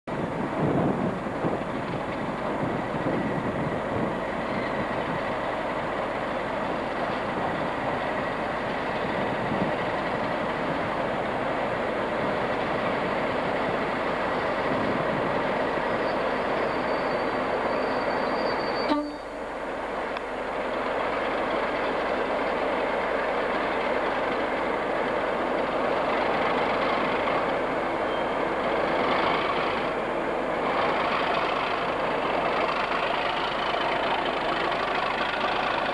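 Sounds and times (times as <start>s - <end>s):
diesel locomotive engine: 0.0s - 35.9s.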